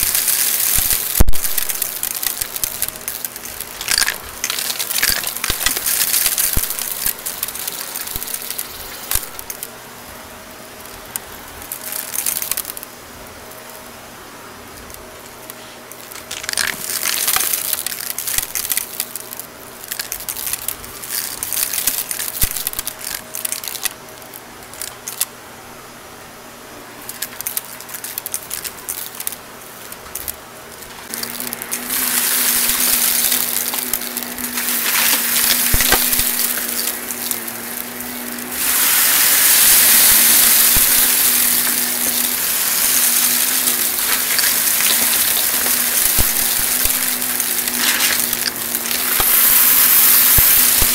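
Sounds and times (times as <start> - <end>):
debris clicking and rattling: 0.0 - 9.7, 11.1 - 12.9, 15.9 - 25.3, 27.0 - 50.9
vacuum cleaner motor hum: 31.1 - 50.9
loud rushing hiss of suction: 31.8 - 50.9.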